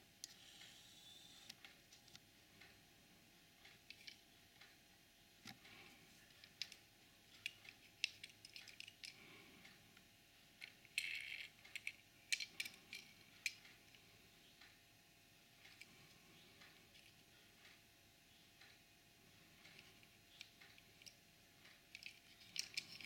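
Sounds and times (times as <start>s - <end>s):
fingers handling toy car: 10.6s - 13.6s, 21.9s - 23.0s.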